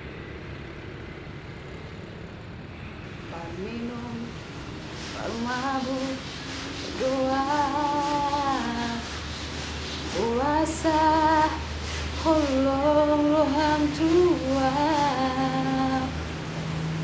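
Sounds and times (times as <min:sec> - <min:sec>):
woman singing slow sad song: 0:03.3 - 0:04.4, 0:05.2 - 0:06.2, 0:06.9 - 0:09.1, 0:10.1 - 0:16.3.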